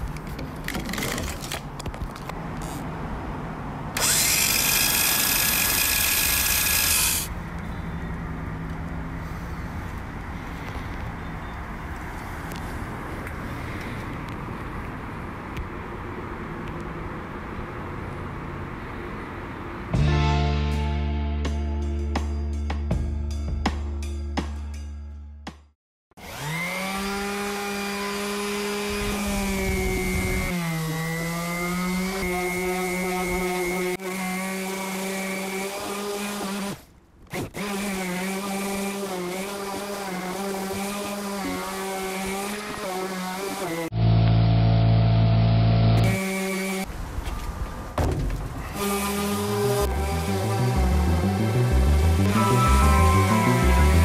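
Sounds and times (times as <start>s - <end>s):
electric power tool running: 4.0s - 7.3s, 49.0s - 54.0s
orbital sander sanding wood: 26.2s - 36.7s, 37.6s - 43.9s, 48.8s - 54.0s.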